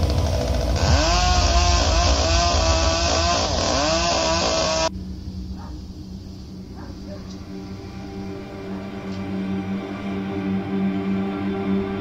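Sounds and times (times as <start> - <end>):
chainsaw revving: 0.0 - 4.9.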